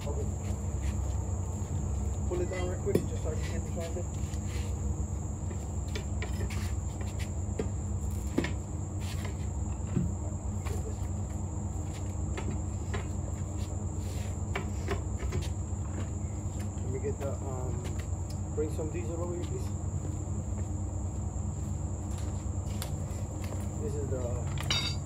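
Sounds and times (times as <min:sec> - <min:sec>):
crickets trilling: 0:00.0 - 0:25.0
tire tools knocking on rim: 0:24.6 - 0:25.0.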